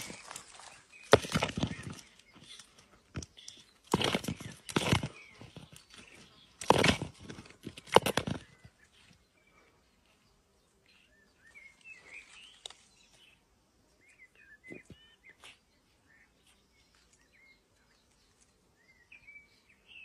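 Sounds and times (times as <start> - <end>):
tortoise shells knocking and scraping: 0.0 - 8.8.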